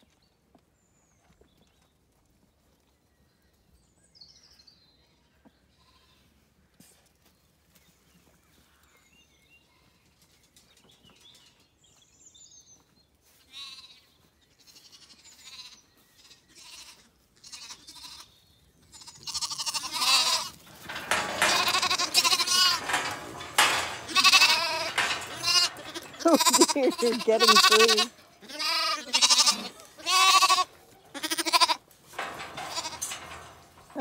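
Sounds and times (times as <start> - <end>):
lambs bleating: 14.6 - 18.3, 18.9 - 20.6, 21.3 - 31.8.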